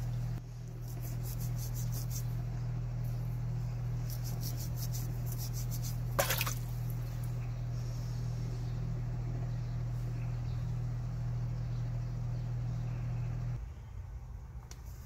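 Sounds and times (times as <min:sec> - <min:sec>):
low hum: 0:00.0 - 0:14.7
abrasive pad scrubbing a ring: 0:00.8 - 0:02.4, 0:04.0 - 0:06.2.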